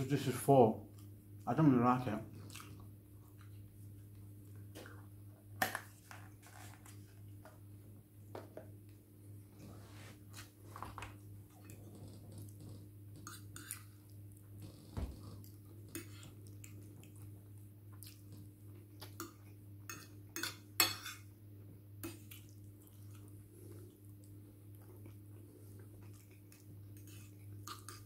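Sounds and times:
steady low hum: 0.0 - 28.0
cutlery clinking against dishes: 19.9 - 21.3.

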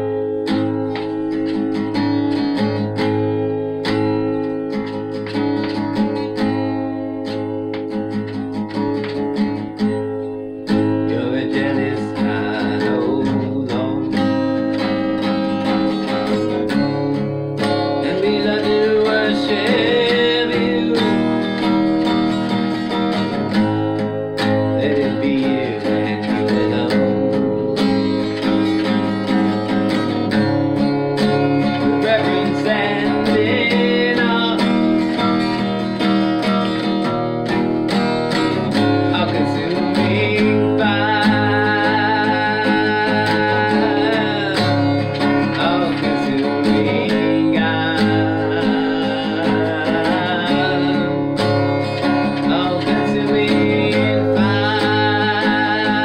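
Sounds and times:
acoustic guitar strumming: 0.0 - 56.0
man singing: 10.6 - 37.6, 38.3 - 56.0.

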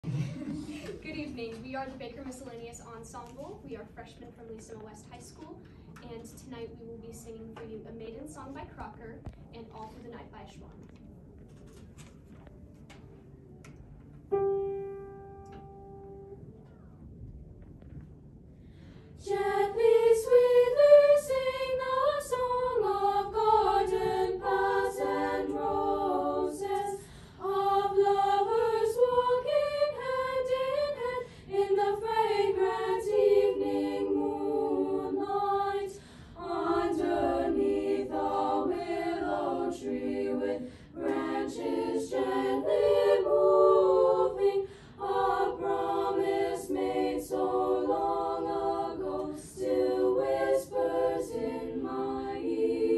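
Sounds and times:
girls singing a cappella: 19.2 - 52.9.

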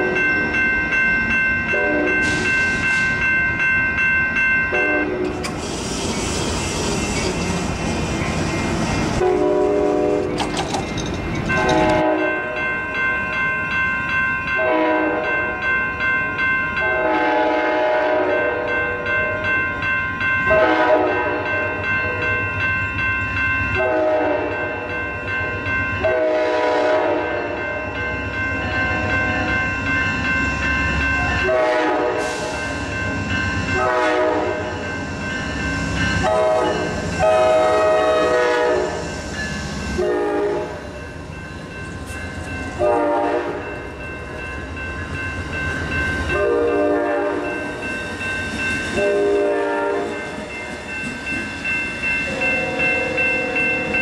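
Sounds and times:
bell ringing: 0.0 - 5.2, 10.3 - 17.1, 18.3 - 26.4, 27.2 - 37.5, 40.9 - 54.0
train rumbling past: 0.0 - 54.0
train horn blasts: 1.7 - 2.3, 4.7 - 5.4, 9.2 - 10.4, 11.6 - 12.6, 14.6 - 15.3, 16.8 - 18.8, 20.5 - 21.5, 23.8 - 24.6, 26.0 - 27.6, 31.4 - 32.5, 33.8 - 34.7, 36.2 - 39.0, 40.0 - 40.8, 42.8 - 43.7, 46.3 - 47.5, 49.0 - 50.2.

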